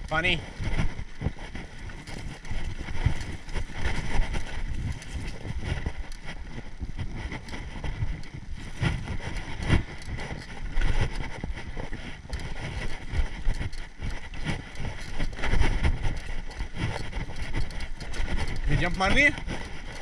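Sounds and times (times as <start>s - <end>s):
bike rattling over bumps: 0.0s - 20.0s
bike tyres on dirt: 0.0s - 20.0s
wind buffeting microphone: 0.0s - 20.0s.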